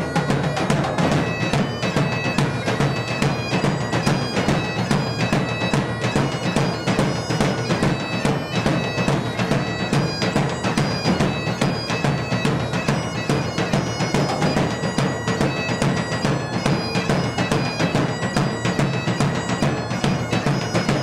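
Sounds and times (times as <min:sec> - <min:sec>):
bagpipes playing over a drone: 0:00.0 - 0:21.0
steady drum beat: 0:00.0 - 0:21.0.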